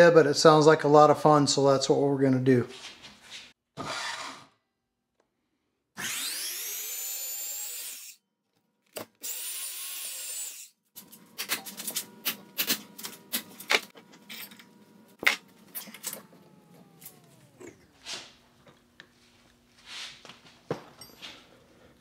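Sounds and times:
bandsaw cutting metal rod: 0:06.0 - 0:08.2, 0:09.2 - 0:18.3.

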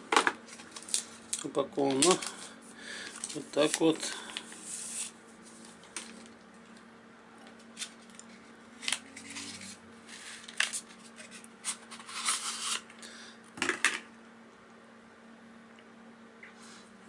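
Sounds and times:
cardboard and plastic rustling: 0:00.1 - 0:06.4, 0:07.7 - 0:12.9.

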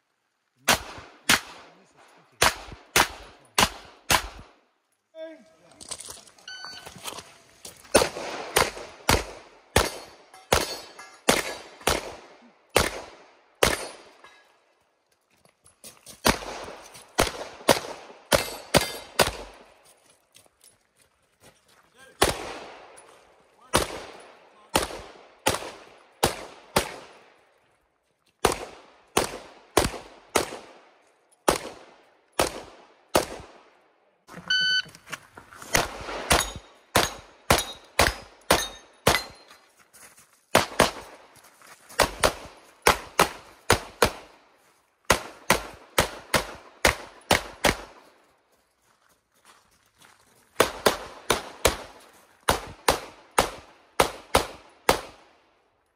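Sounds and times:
pistol shots echoing: 0:00.7 - 0:01.8, 0:02.4 - 0:04.6, 0:07.9 - 0:14.2, 0:16.2 - 0:19.7, 0:22.2 - 0:23.0, 0:23.7 - 0:27.4, 0:28.4 - 0:33.8, 0:35.8 - 0:39.5, 0:42.0 - 0:44.4, 0:45.1 - 0:48.0, 0:50.6 - 0:55.4
short electronic beep: 0:06.4 - 0:07.0, 0:34.4 - 0:34.9.

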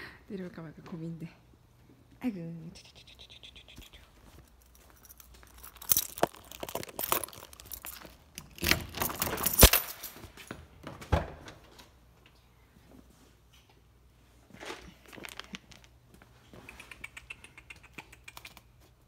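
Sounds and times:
rustling handling noise: 0:03.9 - 0:10.6, 0:14.2 - 0:16.7.

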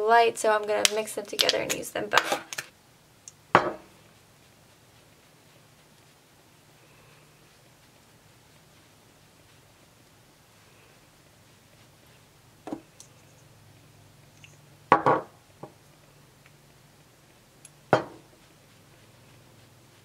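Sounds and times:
faint steady hum: 0:00.0 - 0:20.0
small hard items knocking on table: 0:14.9 - 0:15.4.

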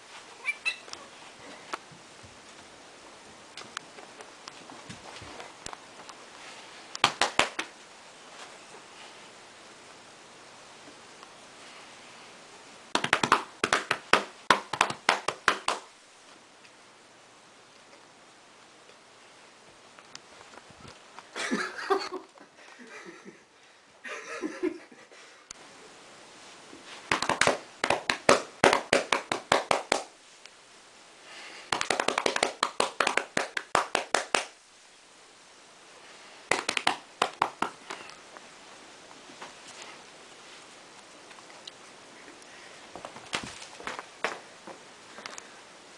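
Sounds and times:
hands patting cat fur: 0:36.5 - 0:38.0.

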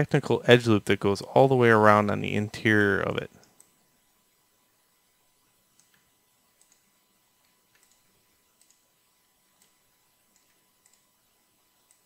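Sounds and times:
mouse and keyboard clicks: 0:07.4 - 0:08.0.

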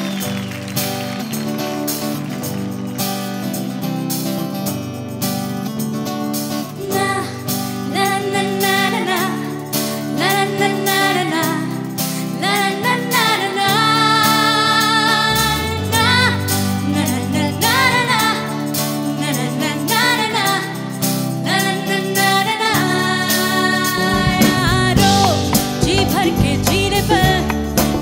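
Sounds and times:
instrumental backing music: 0:00.0 - 0:28.0
girl singing into a microphone: 0:06.8 - 0:27.6.

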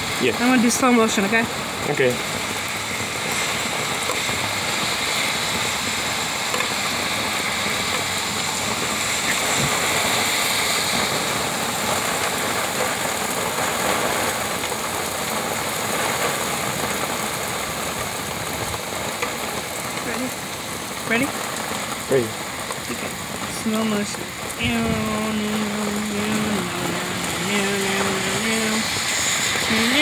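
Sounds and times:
heavy rain on pavement: 0:00.0 - 0:30.0.

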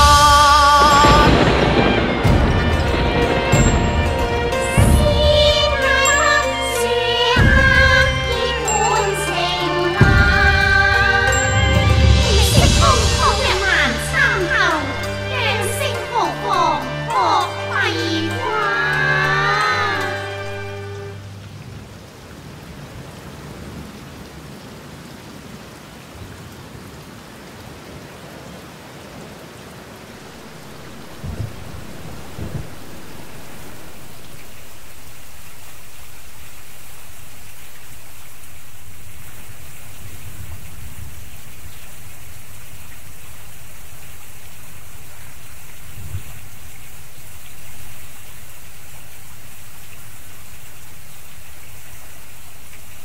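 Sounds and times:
steady rain: 0:00.0 - 0:53.0.

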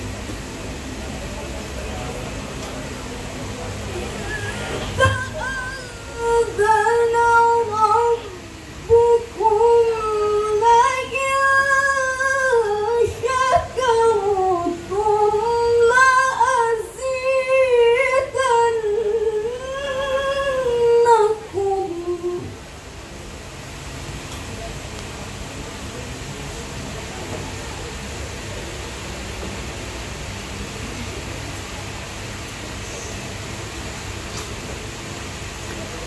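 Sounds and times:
woman reciting melodically: 0:04.2 - 0:22.6.

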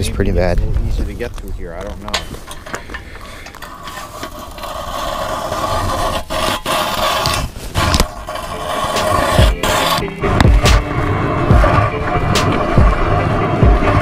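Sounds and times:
ice auger scraping ice: 0:01.9 - 0:14.0.

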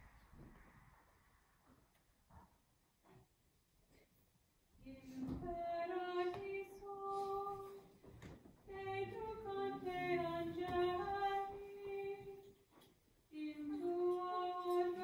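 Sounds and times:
woman singing a hymn: 0:04.8 - 0:08.0, 0:08.6 - 0:12.6, 0:13.3 - 0:15.0.

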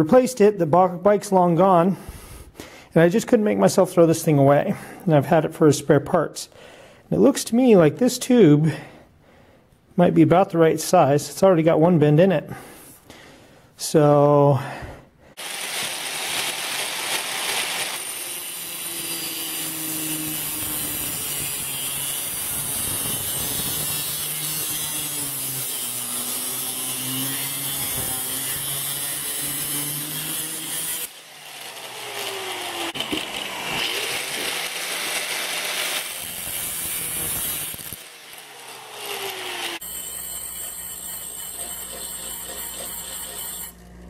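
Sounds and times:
angle grinder cutting metal: 0:15.4 - 0:44.0.

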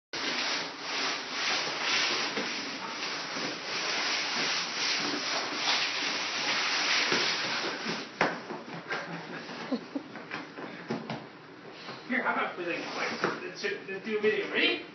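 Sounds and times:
cardboard box scraping on tiled floor: 0:00.2 - 0:08.1.

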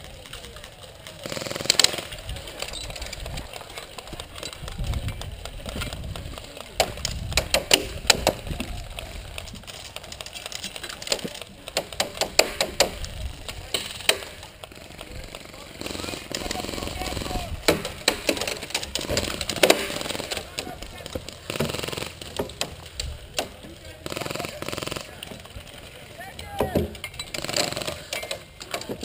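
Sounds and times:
airsoft gunfire: 0:01.2 - 0:02.7, 0:05.4 - 0:09.4, 0:11.0 - 0:22.8, 0:26.7 - 0:28.3.

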